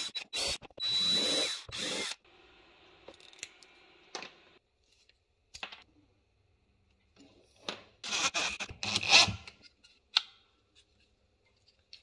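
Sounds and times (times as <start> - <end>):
cordless drill whining: 0.0 - 2.2.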